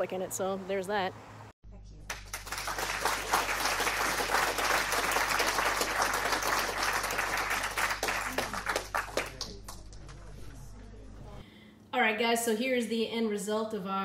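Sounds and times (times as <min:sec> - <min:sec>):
applause: 0:02.0 - 0:10.4.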